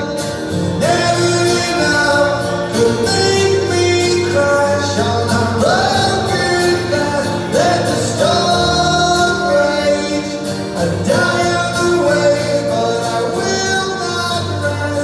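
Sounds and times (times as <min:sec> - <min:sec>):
keyboard: 0:00.0 - 0:15.0
strummed acoustic guitar: 0:00.0 - 0:15.0.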